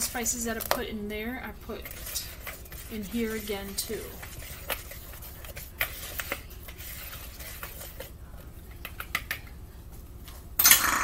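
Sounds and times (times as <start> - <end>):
spoon scraping plastic bowl: 0.0 - 9.4.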